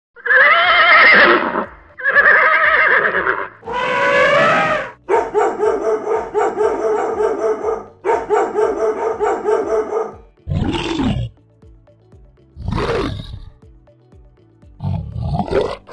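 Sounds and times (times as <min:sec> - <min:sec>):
horse whinnying: 0:00.2 - 0:05.0, 0:10.5 - 0:11.3, 0:12.6 - 0:13.5
dog barking rapidly: 0:03.7 - 0:10.9.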